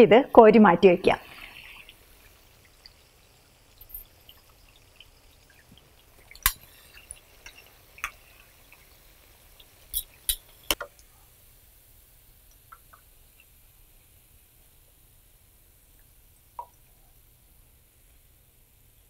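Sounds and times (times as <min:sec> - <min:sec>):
oil crackling: 0:01.2 - 0:11.0
metal utensils clinking: 0:09.9 - 0:10.8.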